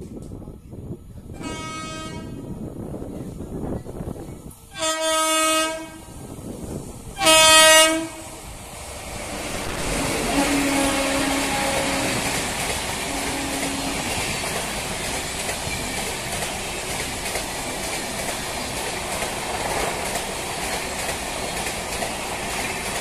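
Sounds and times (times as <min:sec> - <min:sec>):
train horn blasts: 0:01.4 - 0:02.5, 0:04.7 - 0:06.2, 0:07.2 - 0:08.4, 0:09.4 - 0:14.5
train wheels clattering on rails: 0:09.2 - 0:23.0.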